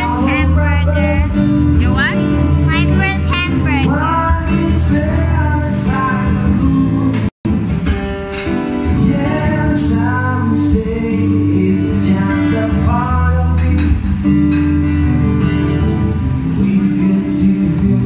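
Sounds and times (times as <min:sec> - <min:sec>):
song with singing over guitar: 0:00.0 - 0:18.0.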